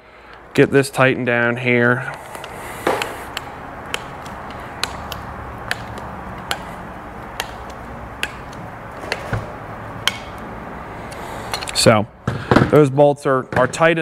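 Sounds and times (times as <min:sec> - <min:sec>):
steady low hum: 0:00.0 - 0:12.7
metal clicks of tools on bolt: 0:02.3 - 0:09.3, 0:10.0 - 0:10.4, 0:11.1 - 0:11.8.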